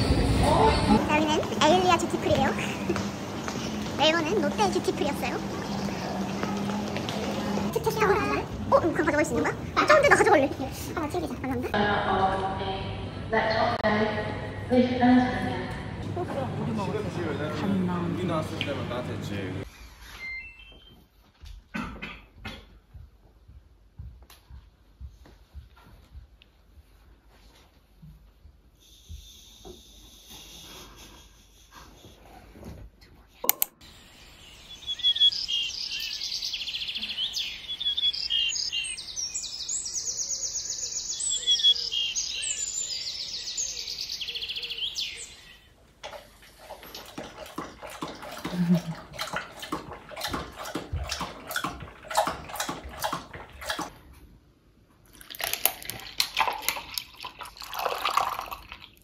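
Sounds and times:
birds chirping and singing: 34.1 - 45.7.

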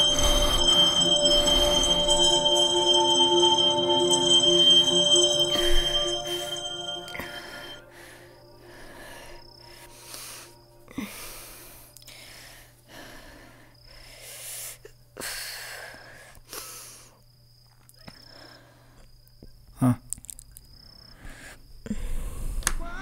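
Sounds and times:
man breathing heavily asleep: 7.6 - 17.2, 18.1 - 19.1.

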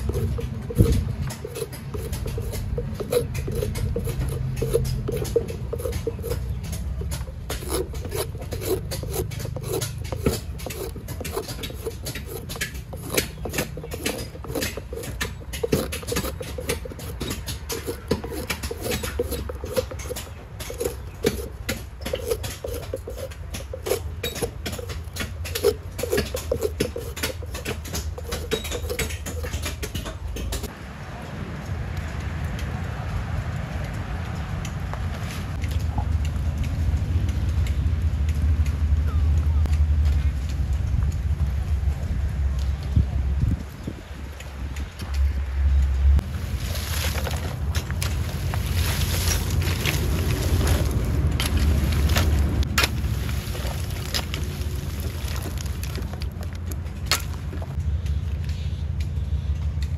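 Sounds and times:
knife scraping coconut: 0.0 - 30.7, 46.2 - 56.2.

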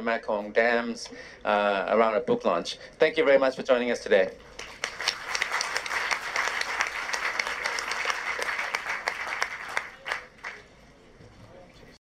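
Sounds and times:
audience applause: 4.5 - 10.7.

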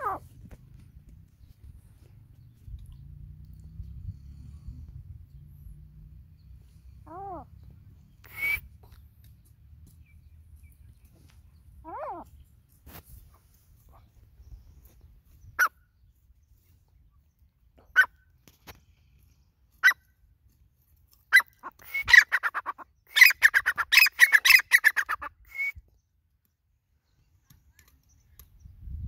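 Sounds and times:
francolin calling: 8.2 - 8.7.

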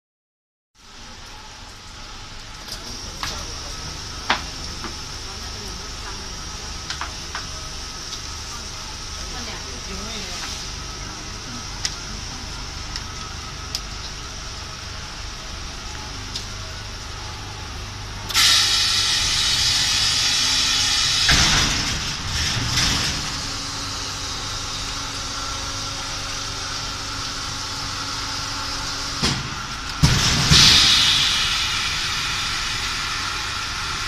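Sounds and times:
welding machine hum: 0.8 - 34.0
loud hiss: 18.2 - 24.4, 28.7 - 34.0.

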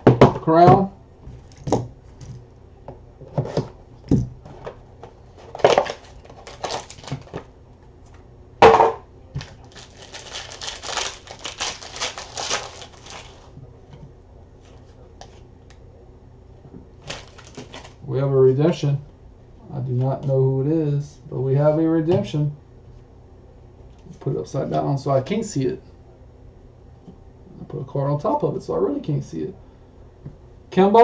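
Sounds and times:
foil wrapper crinkling and tearing: 5.5 - 7.5, 9.4 - 13.5, 17.0 - 18.0.

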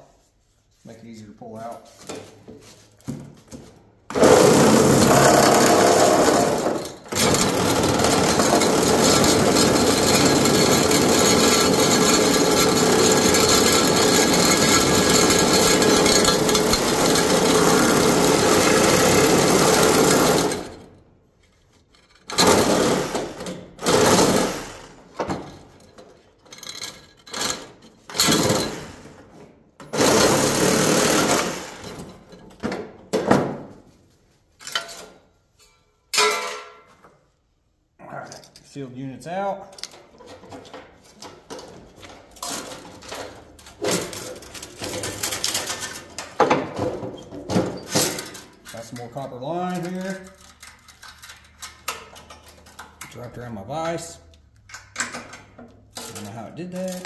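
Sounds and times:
power saw cutting metal pipe: 4.1 - 20.8.

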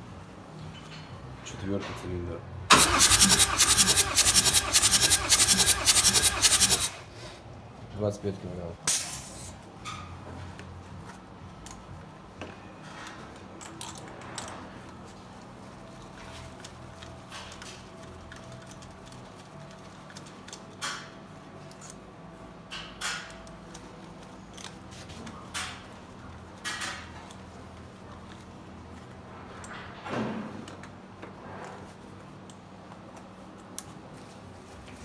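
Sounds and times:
tools clicking and knocking: 13.0 - 14.6, 22.7 - 23.9.

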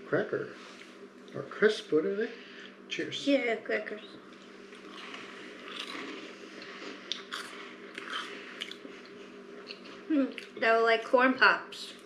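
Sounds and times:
crackers crunching while chewed: 4.3 - 10.6.

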